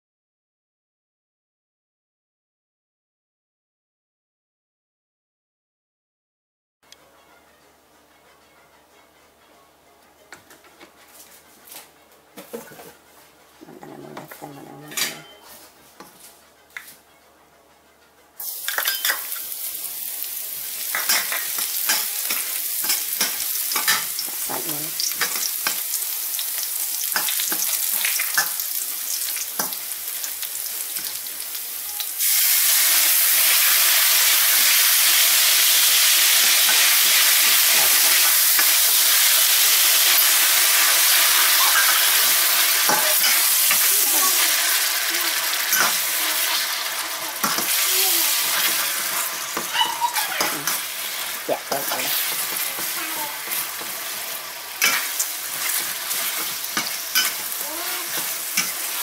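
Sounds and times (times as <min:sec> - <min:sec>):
food sizzling in hot oil: 0:18.4 - 0:59.0
metal spatula stirring: 0:20.9 - 0:24.3, 0:51.7 - 0:59.0.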